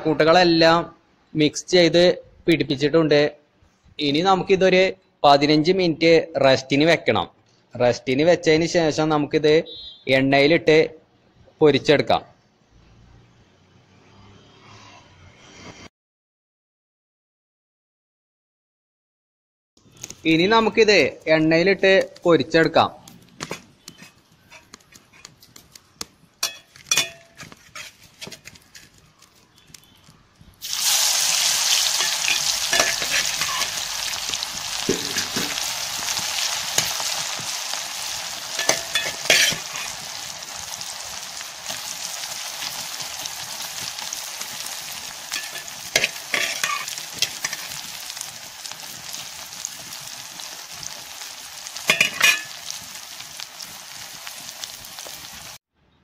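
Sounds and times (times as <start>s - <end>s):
food deep-frying in oil: 19.8s - 55.6s
spoon stirring and scraping: 23.3s - 29.9s, 31.8s - 35.7s, 38.5s - 40.1s, 45.3s - 48.2s, 51.8s - 52.6s.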